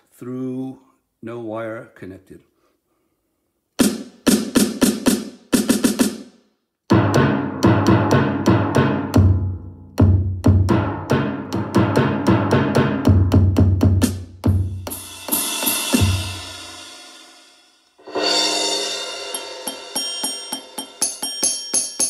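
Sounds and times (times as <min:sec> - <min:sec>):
electronic hand percussion pattern: 0:10.0 - 0:16.5, 0:19.0 - 0:22.0
cymbal crash: 0:14.9 - 0:21.0.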